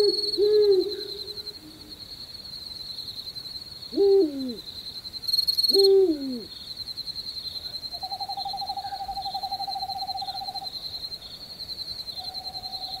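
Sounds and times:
owl quavering trill: 0.0s - 1.8s
cricket chirping: 0.0s - 13.0s.

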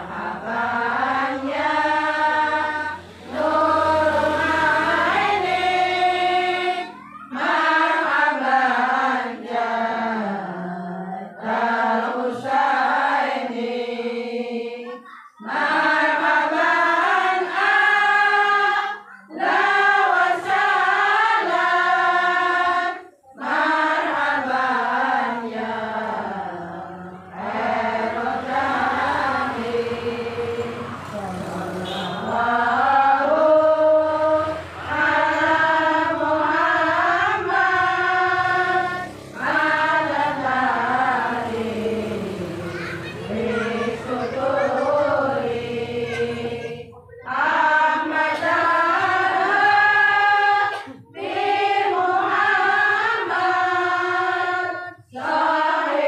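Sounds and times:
group of voices chanting: 0.0s - 56.0s.

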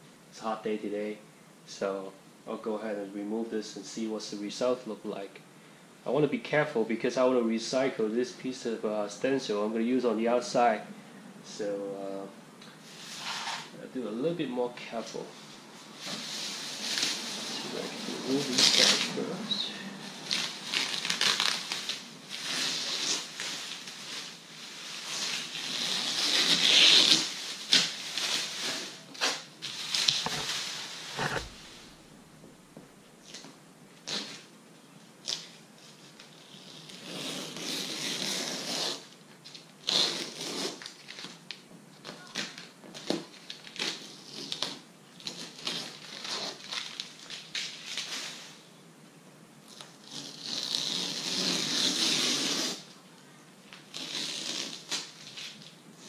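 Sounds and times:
plastic sheet crinkling: 16.0s - 19.4s, 20.0s - 31.9s, 45.3s - 48.6s
masking tape peeling: 16.0s - 31.7s, 33.2s - 34.5s, 35.2s - 48.6s, 49.7s - 52.9s, 53.7s - 55.7s.

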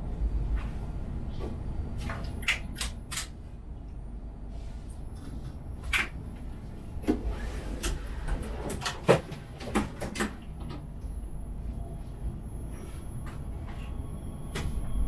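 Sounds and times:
electric train humming: 10.5s - 15.0s.

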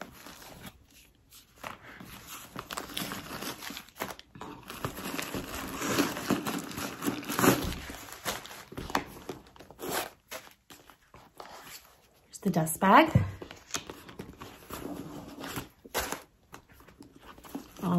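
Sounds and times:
paper stuffing crinkling: 0.0s - 12.3s, 13.4s - 17.9s.

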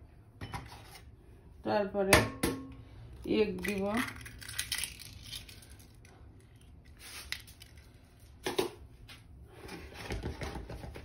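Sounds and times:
egg shell cracking: 3.6s - 8.5s.

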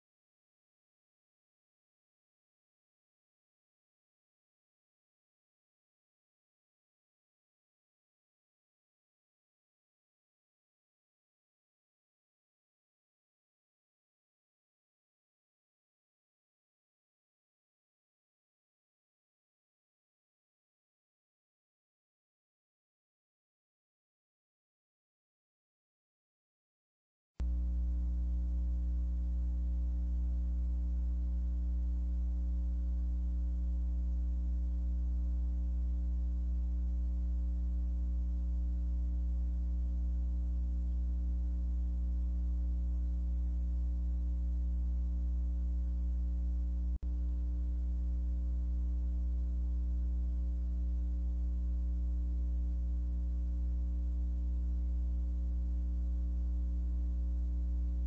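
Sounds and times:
low electrical hum: 27.4s - 58.0s.

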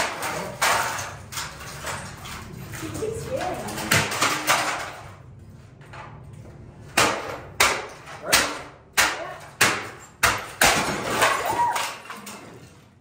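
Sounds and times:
hammer smashing items on wood: 6.9s - 12.6s.

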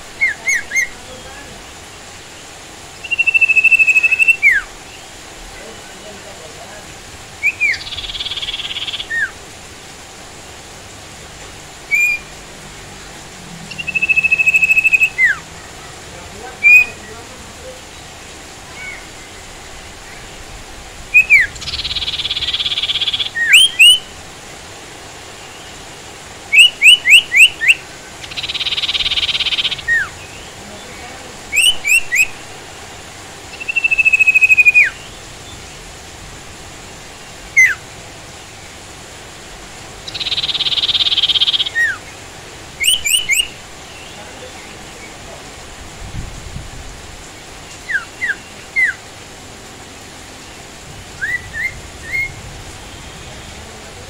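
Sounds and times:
steady hiss: 0.0s - 54.0s
bird whistling: 0.2s - 1.0s, 3.0s - 4.7s, 7.4s - 9.3s, 11.9s - 12.3s, 13.7s - 15.4s, 16.6s - 17.0s, 21.1s - 24.1s, 26.5s - 30.1s, 31.5s - 32.4s, 33.6s - 35.0s, 37.6s - 37.8s, 40.1s - 42.0s, 42.8s - 43.6s, 47.8s - 49.0s, 51.2s - 52.4s
bird raspy buzzing calls: 0.2s - 5.2s, 7.4s - 9.5s, 11.8s - 24.2s, 26.5s - 30.6s, 33.4s - 35.2s, 40.0s - 44.8s.

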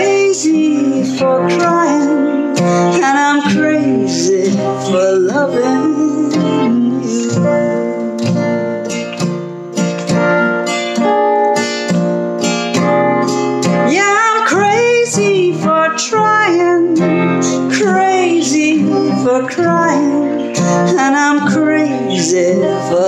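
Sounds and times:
wordless singing voice: 0.0s - 8.2s, 13.8s - 23.0s
acoustic guitar strumming: 0.0s - 23.0s.

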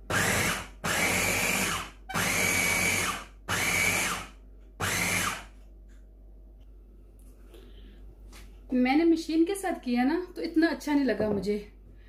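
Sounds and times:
electric food chopper whining: 0.0s - 5.5s.

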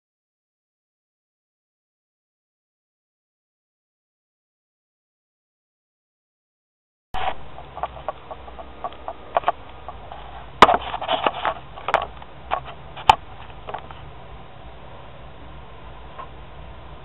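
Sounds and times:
webcam being handled: 7.2s - 14.0s
sharp knocks: 10.6s - 13.8s.

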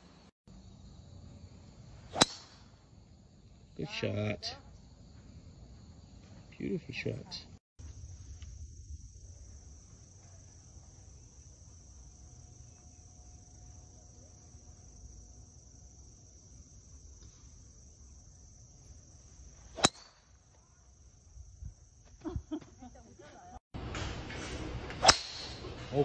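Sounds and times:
golf driver striking ball: 2.1s - 2.6s, 25.0s - 25.7s
high-pitched insect drone: 7.8s - 22.9s.

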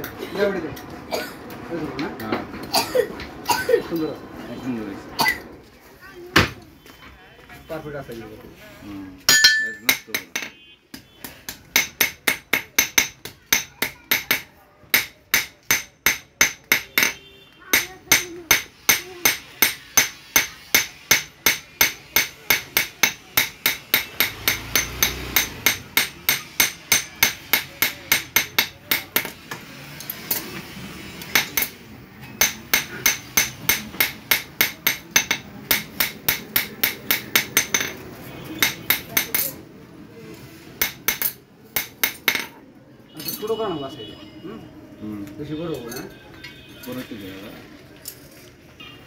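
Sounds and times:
hammer striking iron on anvil: 9.3s - 10.5s, 11.6s - 29.4s, 31.2s - 38.0s, 38.6s - 39.5s, 40.8s - 42.5s.

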